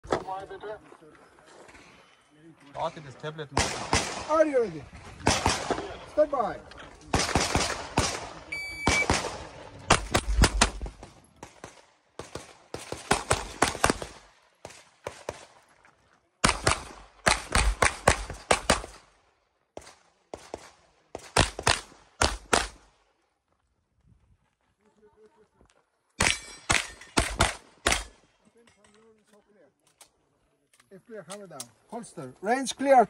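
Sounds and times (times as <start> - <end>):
shot timer beep: 8.5 - 9.1.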